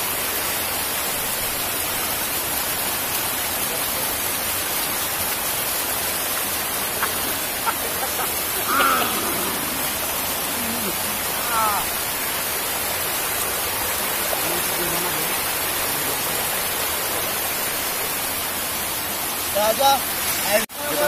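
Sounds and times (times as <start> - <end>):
waterfall rushing over rock: 0.0 - 21.0
person's voice: 6.8 - 12.0, 14.2 - 16.6, 19.5 - 21.0.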